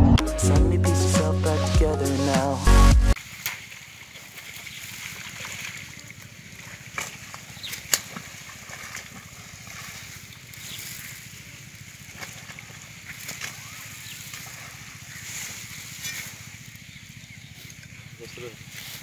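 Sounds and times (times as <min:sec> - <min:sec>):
water sloshing against a net: 0:03.2 - 0:16.9
fish splashing: 0:03.2 - 0:17.2.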